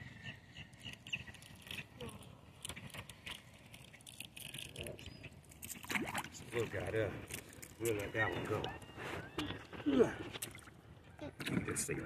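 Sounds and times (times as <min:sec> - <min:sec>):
small water splashes: 0:05.4 - 0:07.9.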